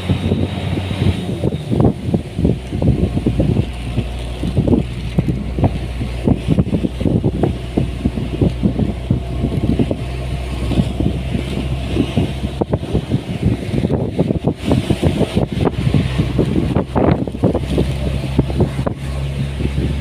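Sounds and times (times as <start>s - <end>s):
vehicle engine running: 0.0s - 20.0s
wind buffeting microphone: 0.0s - 20.0s.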